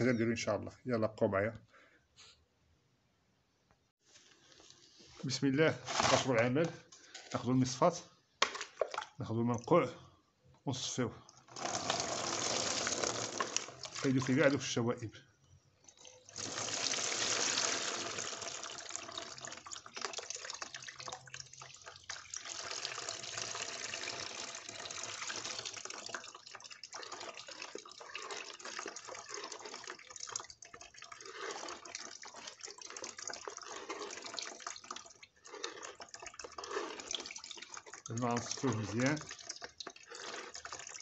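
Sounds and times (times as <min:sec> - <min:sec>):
liquid splashing into plastic basin: 0:08.4 - 0:09.7, 0:11.3 - 0:14.5, 0:15.9 - 0:41.0.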